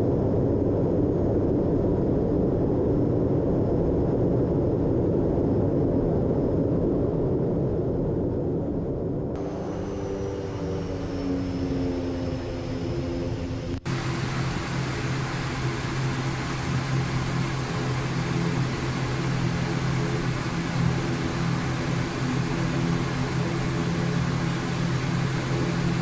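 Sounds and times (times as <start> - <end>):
turboprop engines droning: 0.0 - 26.0
steady hum tones: 9.4 - 26.0.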